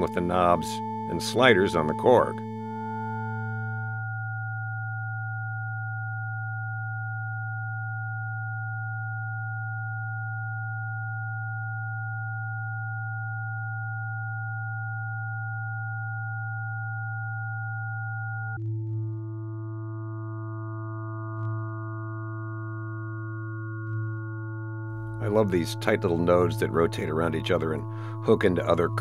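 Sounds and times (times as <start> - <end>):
sine wave drone: 0.0 - 29.0.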